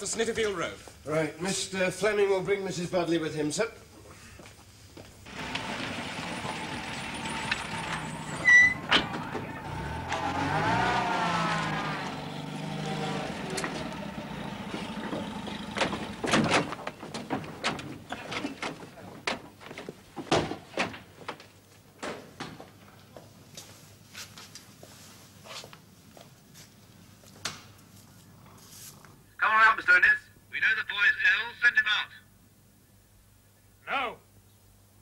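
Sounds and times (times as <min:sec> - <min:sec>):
vehicle engine: 0:05.3 - 0:18.2
short high squeal: 0:08.3 - 0:08.9.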